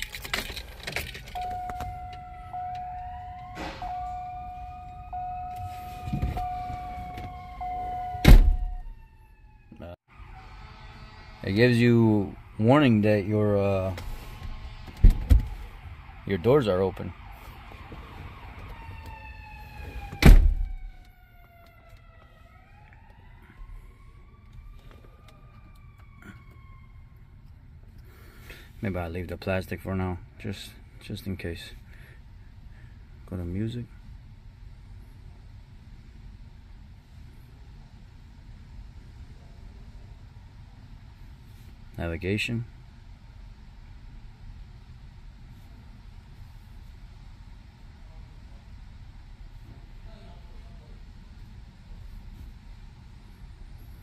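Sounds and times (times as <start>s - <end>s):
truck warning chime: 1.3s - 9.0s
siren wailing: 1.3s - 27.5s
faint rising whine: 1.4s - 27.2s
loud thud: 8.2s - 8.9s, 14.5s - 15.6s, 20.2s - 20.8s.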